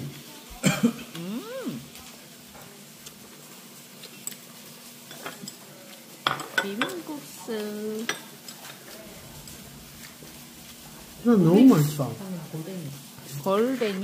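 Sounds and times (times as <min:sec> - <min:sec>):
dishes and cutlery clinking: 0:04.0 - 0:09.0.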